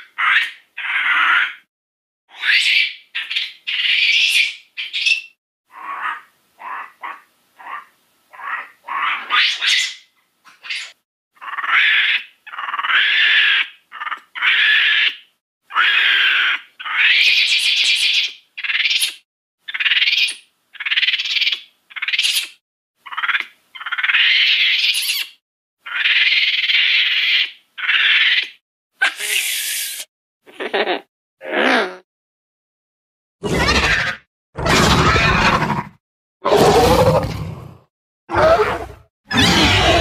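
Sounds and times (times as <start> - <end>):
toy dinosaur calls: 38.3 - 40.0.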